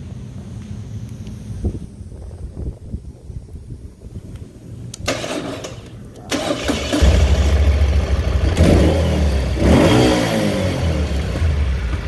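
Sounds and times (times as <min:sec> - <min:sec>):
starter motor cranking: 0:05.0 - 0:07.6
motorcycle engine idling: 0:05.2 - 0:09.7, 0:10.6 - 0:12.0.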